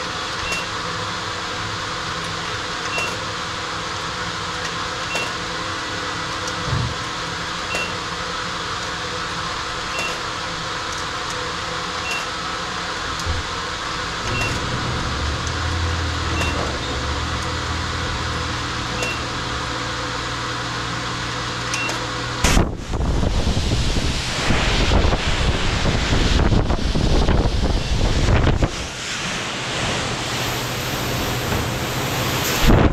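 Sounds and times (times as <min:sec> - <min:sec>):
car wash machinery humming: 0:00.0 - 0:32.9
deep rumble: 0:13.2 - 0:20.1
short electronic beeps: 0:14.3 - 0:14.6, 0:16.3 - 0:16.7, 0:19.0 - 0:19.3
rush of spray: 0:22.4 - 0:32.9.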